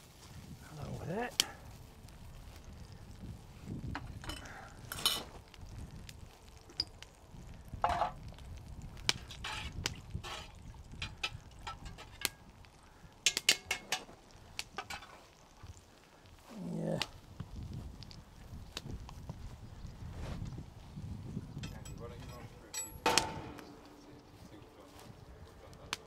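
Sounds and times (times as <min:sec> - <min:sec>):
pots and utensils clinking: 0:04.0 - 0:05.4, 0:09.1 - 0:12.4, 0:13.2 - 0:14.2, 0:14.8 - 0:15.4, 0:21.6 - 0:24.4.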